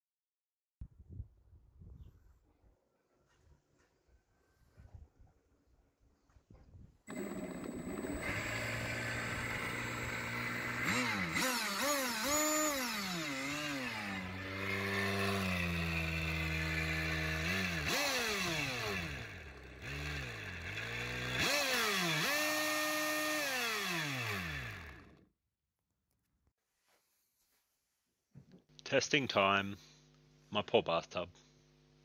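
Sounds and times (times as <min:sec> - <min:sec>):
motor whine rising and falling: 0:07.1 - 0:25.2.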